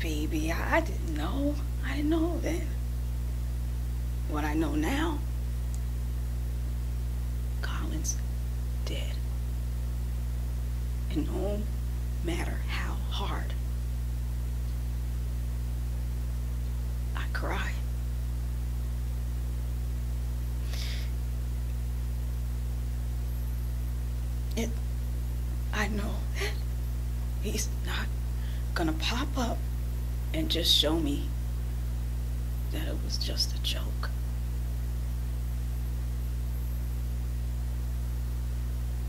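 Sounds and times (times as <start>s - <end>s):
constant hiss: 0.0s - 39.0s
low hum: 0.0s - 39.0s
faint hiss: 15.9s - 21.6s
sharp intake of breath: 20.6s - 21.2s.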